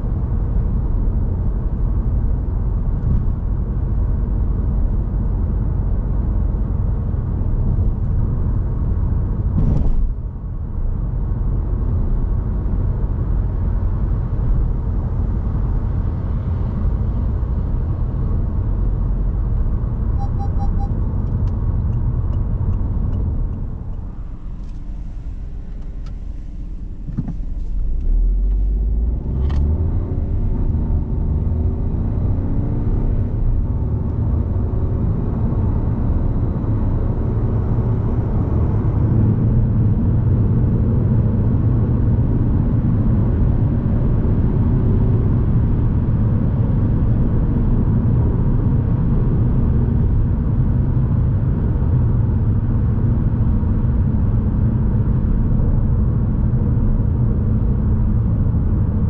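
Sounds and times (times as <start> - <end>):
car engine accelerating: 11.7 - 41.2.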